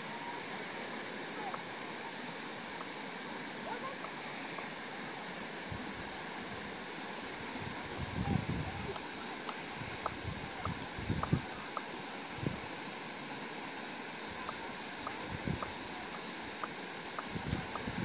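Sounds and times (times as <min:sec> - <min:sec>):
outdoor background hiss: 0:00.0 - 0:18.0.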